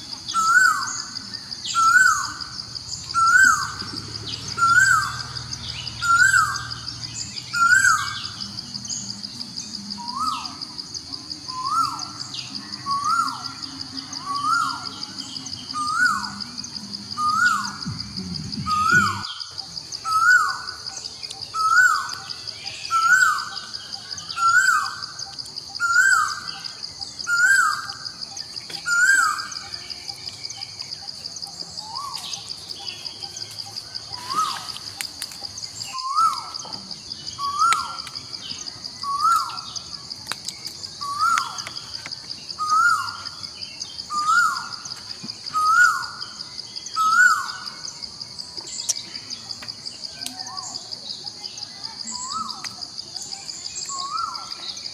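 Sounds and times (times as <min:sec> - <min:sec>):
high-pitched insect drone: 0:00.0 - 0:54.9.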